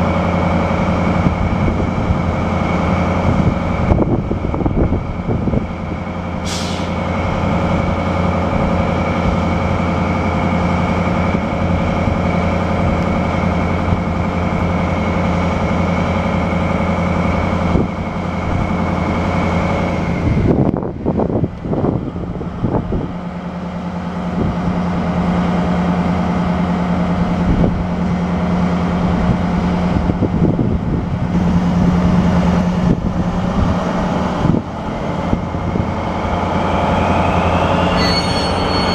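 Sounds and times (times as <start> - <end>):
diesel locomotive engine running: 0.0 - 38.9
air hiss: 6.4 - 7.0.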